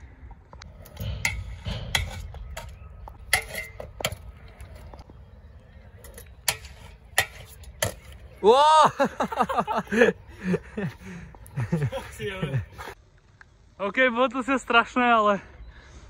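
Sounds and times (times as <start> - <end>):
scooter wheels rolling on concrete: 0.2 - 13.4
scooter clacking on rail and ground: 0.4 - 5.2, 5.8 - 8.3.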